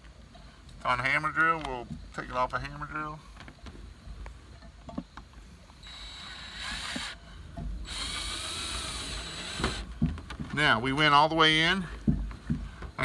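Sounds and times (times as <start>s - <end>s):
drill motor running: 5.8s - 7.2s, 7.8s - 9.9s.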